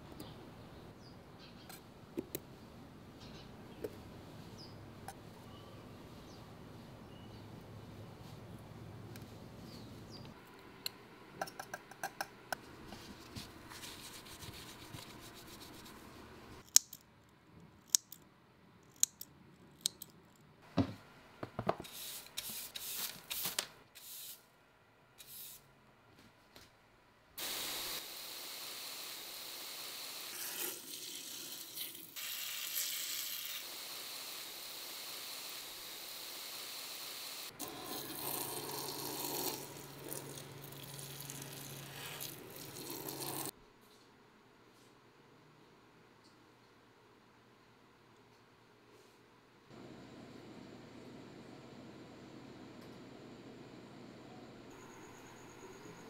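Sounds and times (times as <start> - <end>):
steady hiss: 27.4 - 37.6.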